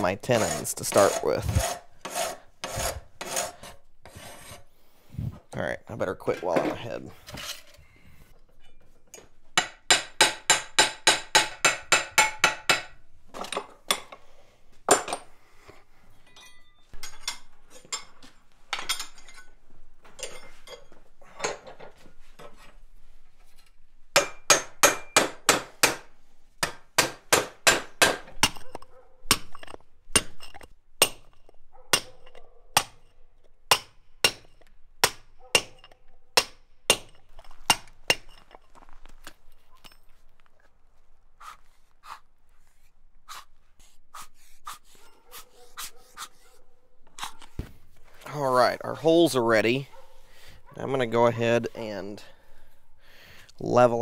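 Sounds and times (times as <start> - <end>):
hammer striking steel: 9.6 - 13.0, 24.2 - 28.7, 29.3 - 31.4, 32.8 - 38.4
hammer driving chisel into stone: 9.6 - 14.2, 24.2 - 28.7, 29.3 - 38.5.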